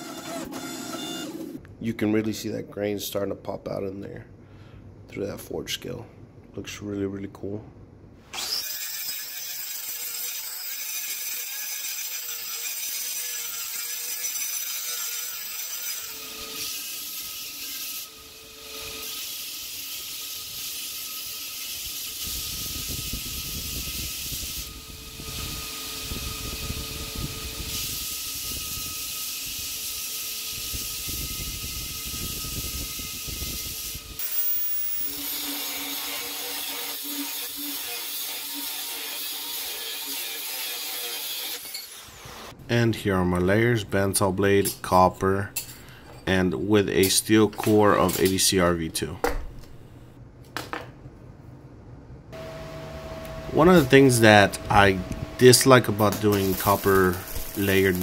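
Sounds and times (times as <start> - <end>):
angle grinder cutting steel: 8.3 - 42.6, 52.4 - 58.0
belt grinder grinding steel: 8.3 - 42.6, 52.4 - 58.0
angle grinder sanding steel: 8.4 - 42.5, 52.4 - 58.0.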